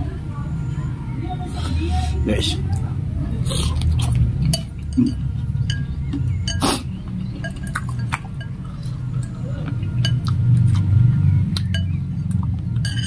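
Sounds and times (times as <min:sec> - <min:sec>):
low steady hum: 0:00.0 - 0:13.0
eating sounds: 0:03.4 - 0:05.4, 0:06.1 - 0:10.9
cutlery clinking on glass bowl: 0:04.5 - 0:05.9, 0:07.4 - 0:08.6, 0:12.8 - 0:13.0.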